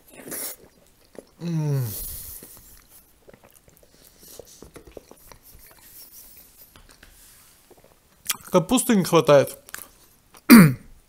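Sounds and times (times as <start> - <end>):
close chewing of food: 0.0 - 7.0, 7.6 - 8.6
man humming: 1.4 - 2.1
wet mouth clicks: 7.7 - 8.5.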